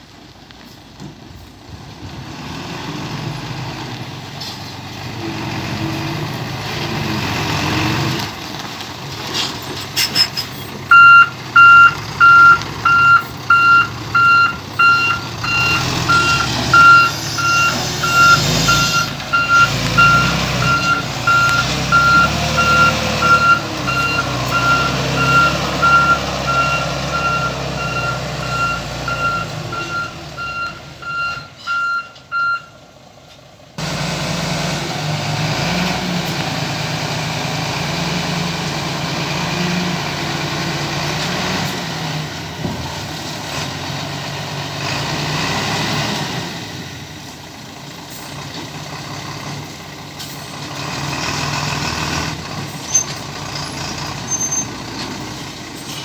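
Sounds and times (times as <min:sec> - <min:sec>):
diesel engine running: 0:00.0 - 0:56.0
reversing alarm beeping: 0:10.9 - 0:32.8.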